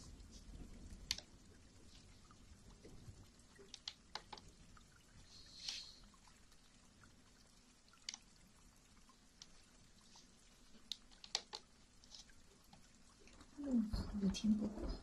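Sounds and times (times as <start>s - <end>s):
soft hiss: 0.0s - 15.0s
faint sharp clicks: 1.0s - 1.3s, 3.6s - 4.5s, 8.0s - 8.3s, 9.4s - 9.6s.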